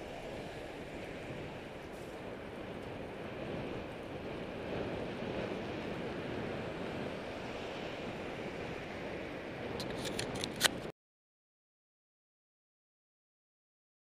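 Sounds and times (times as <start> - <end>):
wind noise on microphone: 0.0 - 10.9.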